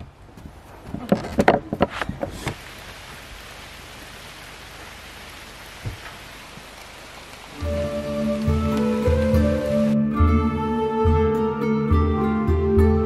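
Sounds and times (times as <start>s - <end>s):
rain falling on puddle: 2.3s - 10.0s.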